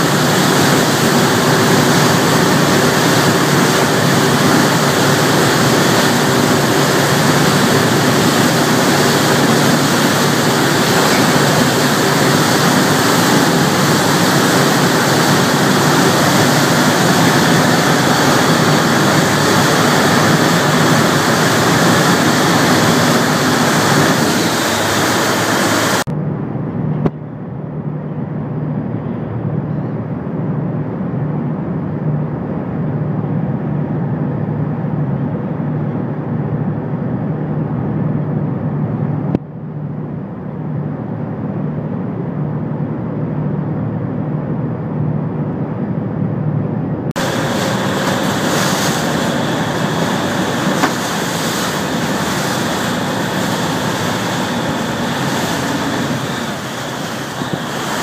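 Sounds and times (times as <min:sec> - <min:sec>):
boat wake rushing: 0:00.0 - 0:26.1, 0:47.0 - 0:58.0
boat engine drone: 0:00.0 - 0:58.0.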